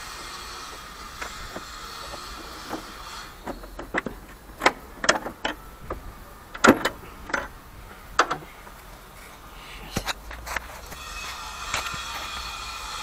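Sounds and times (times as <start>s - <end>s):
hand tools clicking and knocking: 1.2s - 8.8s.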